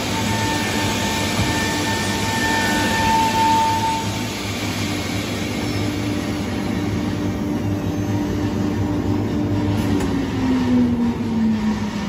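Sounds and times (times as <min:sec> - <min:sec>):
wood router running: 0:00.0 - 0:08.0.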